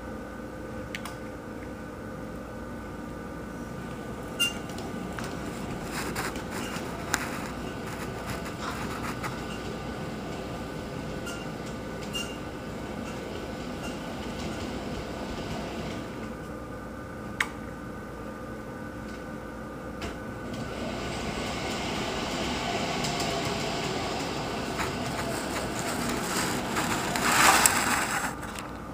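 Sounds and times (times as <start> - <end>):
model train rolling rumble: 4.7 - 16.4, 20.4 - 28.8.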